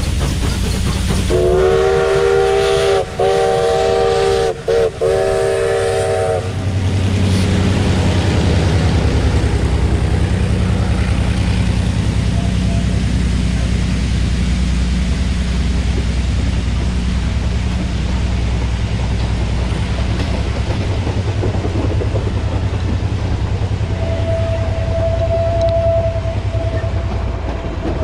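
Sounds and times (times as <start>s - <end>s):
train cars rolling past: 0.0s - 28.0s
wheel clatter on rails: 15.0s - 23.9s, 26.6s - 28.0s.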